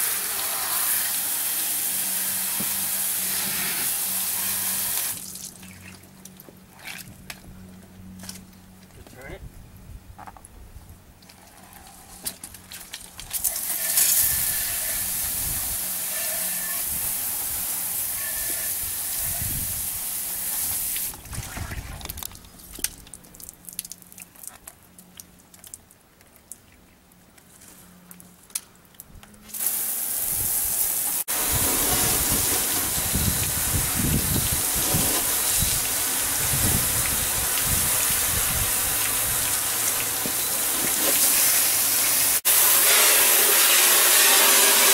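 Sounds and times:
water spray hissing: 0.0 - 5.5, 13.4 - 21.2, 29.5 - 44.9.

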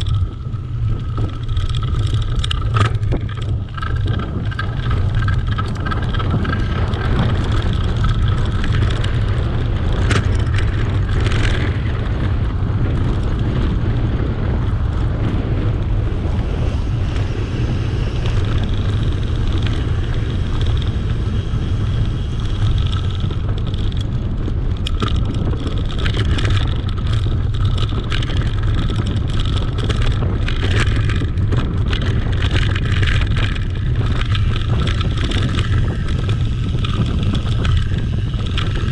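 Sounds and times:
bike clicks and rattles: 0.0 - 38.9
bike tyres rolling on dirt: 0.0 - 38.9
wind buffeting microphone: 0.0 - 38.9.

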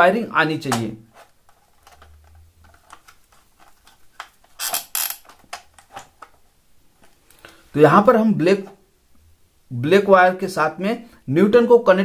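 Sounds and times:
screwdriver clicks and scrapes: 2.8 - 6.0.

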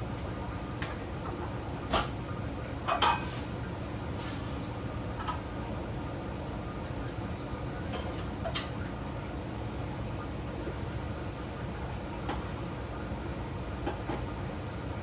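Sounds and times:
gas burner and ventilation rushing: 0.0 - 15.0
dishes and utensils clinking: 2.9 - 3.4.

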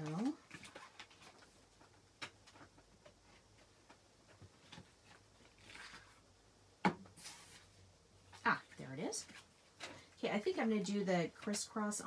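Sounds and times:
paper rustling: 0.1 - 6.2.

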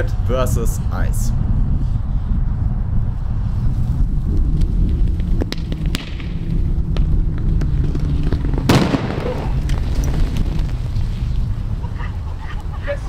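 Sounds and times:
thermite burning rumble: 0.0 - 12.8
crackling: 4.3 - 12.7
sharp explosion: 8.3 - 10.8.

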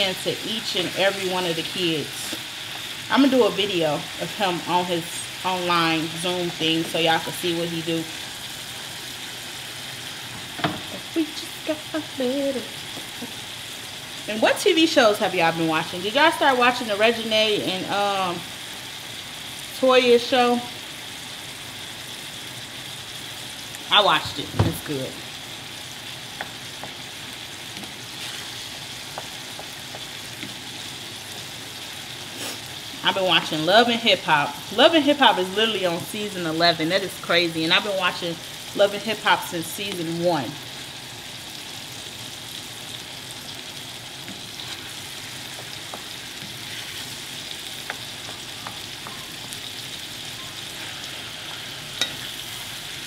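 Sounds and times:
meat sizzling in a pan: 0.0 - 53.0.

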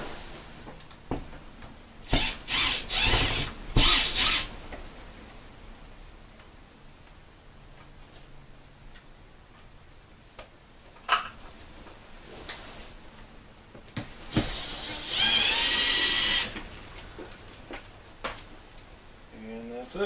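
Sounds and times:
cordless impact driver running: 2.1 - 4.5, 14.3 - 16.6.

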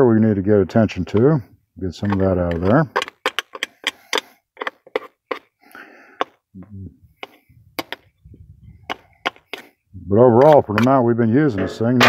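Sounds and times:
screwdriver scraping and clicking: 2.0 - 5.5.

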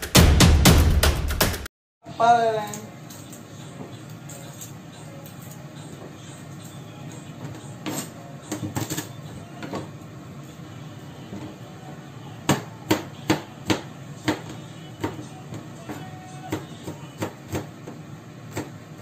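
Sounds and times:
knife chopping on plastic board: 12.5 - 18.8.

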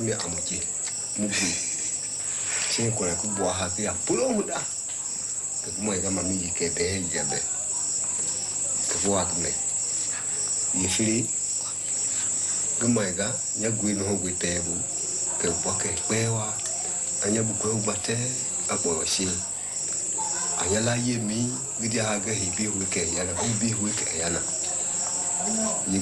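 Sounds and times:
crickets chirping: 0.0 - 26.0
man talking: 2.7 - 4.7, 12.8 - 19.4, 20.6 - 24.6.

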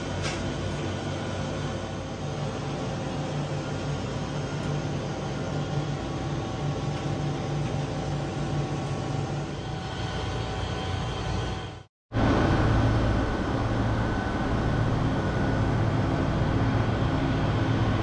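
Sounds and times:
refrigerated cases humming: 0.0 - 18.0.

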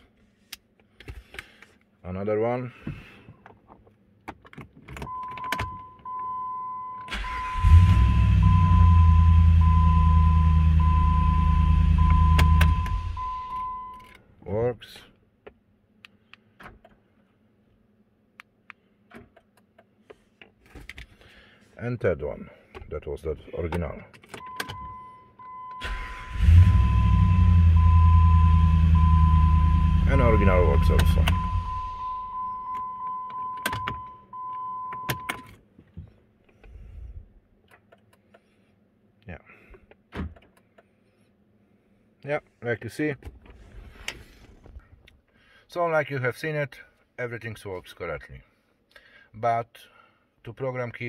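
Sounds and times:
car engine starting and running: 4.9 - 14.1, 23.6 - 35.7
car starter cranking: 7.0 - 8.5, 25.6 - 27.9
car engine idling: 25.9 - 32.7
dashboard chime tone: 27.8 - 33.4.

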